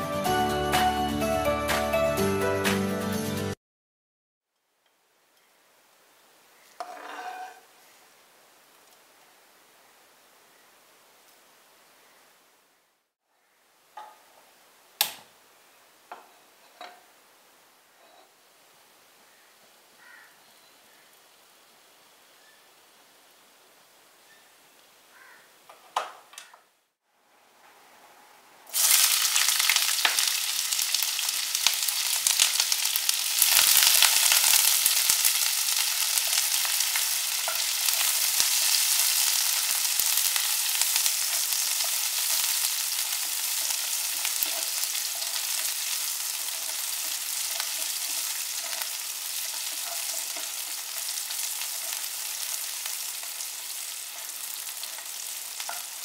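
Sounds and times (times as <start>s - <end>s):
onions sizzling in oil: 28.7s - 56.0s
spatula stirring in pan: 28.7s - 56.0s.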